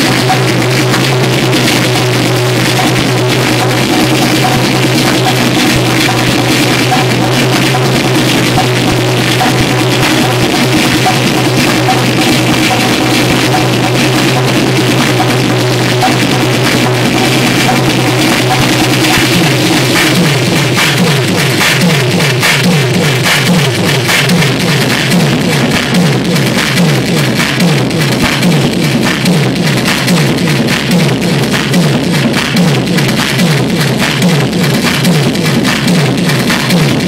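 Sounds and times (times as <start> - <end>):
low drone: 0.0 - 26.8
drum machine beat: 0.0 - 37.0
harsh electronic noise: 0.0 - 37.0.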